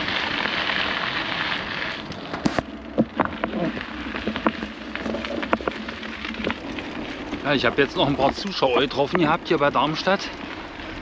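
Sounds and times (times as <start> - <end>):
bicycle tyres rolling: 0.0 - 11.0
bicycle knocks and rattles: 1.0 - 9.4.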